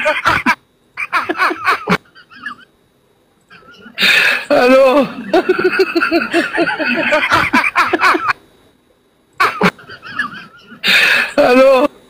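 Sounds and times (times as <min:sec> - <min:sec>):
person laughing: 0:00.0 - 0:02.6, 0:03.5 - 0:08.4, 0:09.4 - 0:11.9
voice burst: 0:03.5 - 0:05.4.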